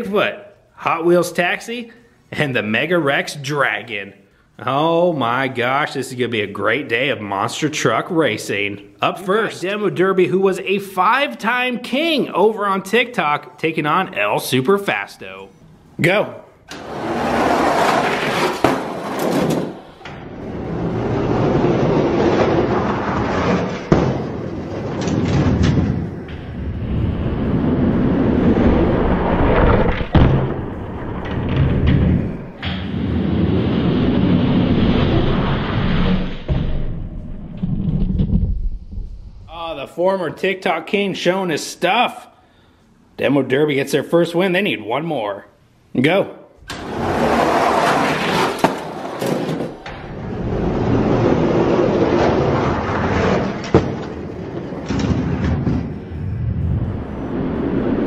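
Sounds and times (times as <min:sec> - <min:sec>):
low rumbling noise: 0:16.7 - 0:39.9, 0:46.6 - 0:58.0
toy trucks rolling down plastic track: 0:16.8 - 0:25.8
heavy thump: 0:23.8 - 0:27.6, 0:29.6 - 0:33.0, 0:36.4 - 0:39.3, 0:53.6 - 0:57.4.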